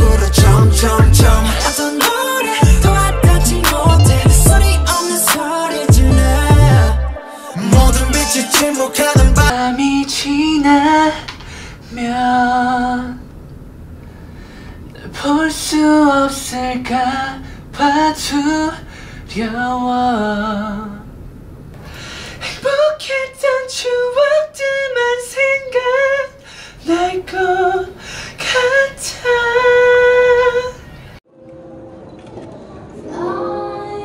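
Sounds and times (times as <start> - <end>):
man singing solo: 0.0 - 10.0.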